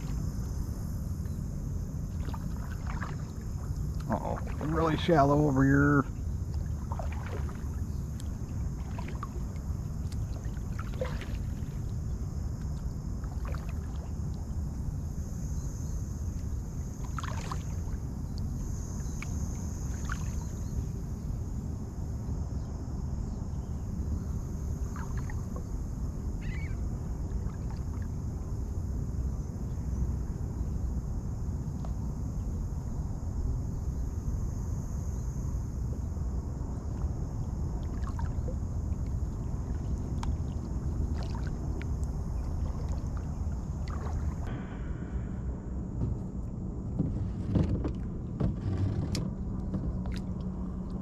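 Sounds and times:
low rumble of wind and water: 0.0s - 51.0s
water drips and splashes: 6.5s - 11.8s, 40.2s - 44.5s.

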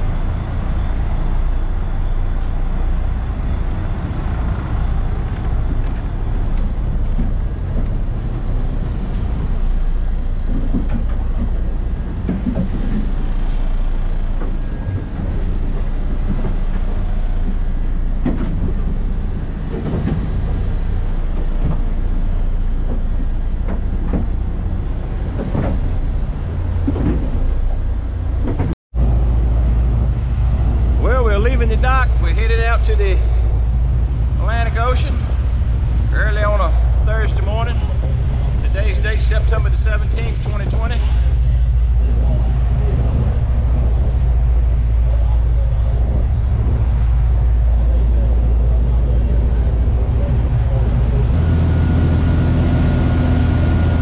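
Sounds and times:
boat diesel engine drone: 0.0s - 54.0s
knocks and clatter: 5.2s - 28.8s.

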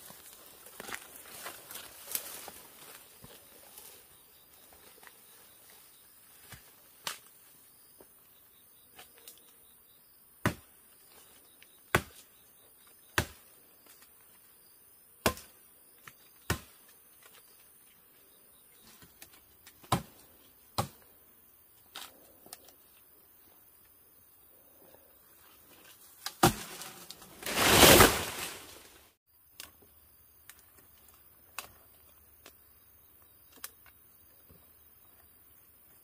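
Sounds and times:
tool chopping wood: 10.4s - 10.7s, 11.9s - 12.2s, 13.2s - 13.4s, 15.2s - 15.5s, 16.4s - 16.8s, 19.8s - 20.1s, 20.8s - 21.0s, 26.3s - 26.8s.

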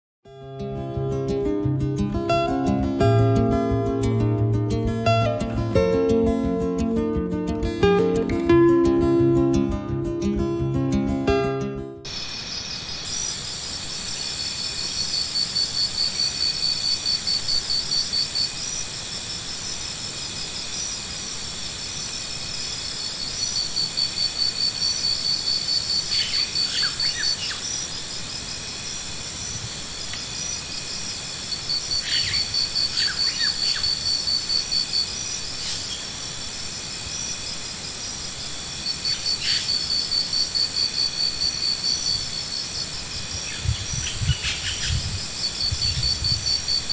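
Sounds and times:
high-pitched insect chorus: 12.1s - 46.9s
rapidly pulsing insect call: 12.1s - 46.9s.

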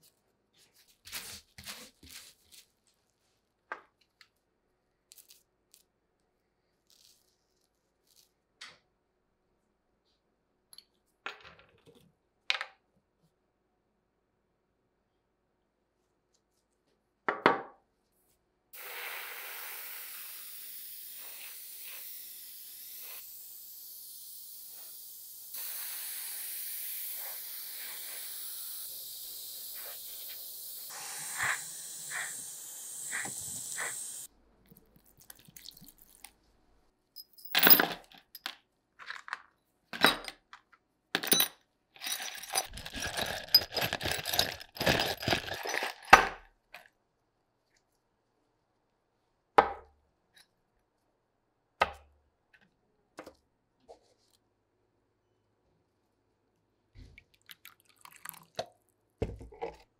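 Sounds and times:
airbrush hissing: 18.8s - 34.3s.

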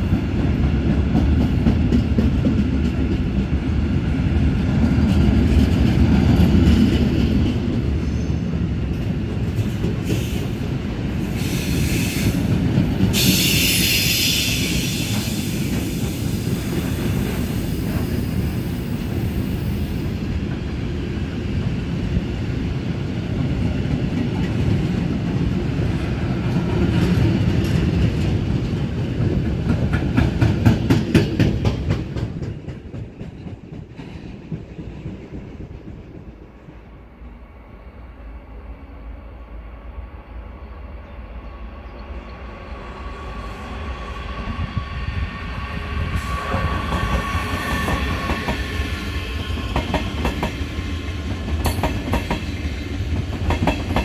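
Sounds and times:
freight train wheels clacking: 0.0s - 3.9s, 4.5s - 20.8s, 23.4s - 37.0s, 46.0s - 54.0s
passenger train approaching: 0.0s - 54.0s.

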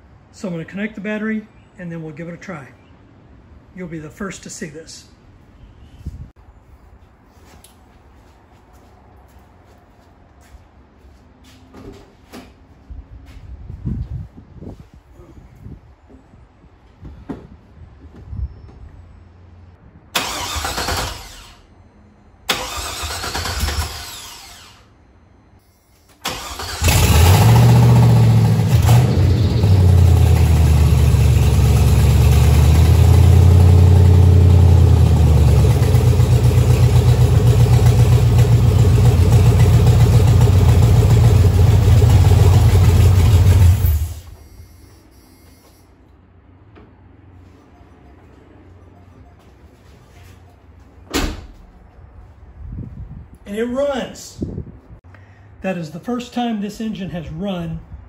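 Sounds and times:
engine starter cranking: 20.2s - 21.6s, 22.5s - 24.8s, 26.2s - 29.8s
engine idling: 26.2s - 44.4s.

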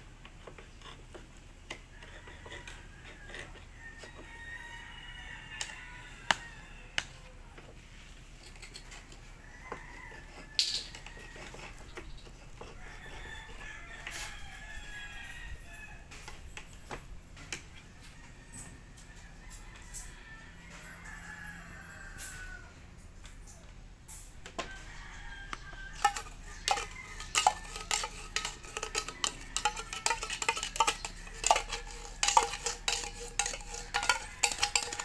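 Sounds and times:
rooster crowing: 1.9s - 7.6s, 8.8s - 11.9s, 12.6s - 16.4s, 17.8s - 23.0s, 24.6s - 35.0s
knife tapping tin can lid: 26.0s - 35.0s.

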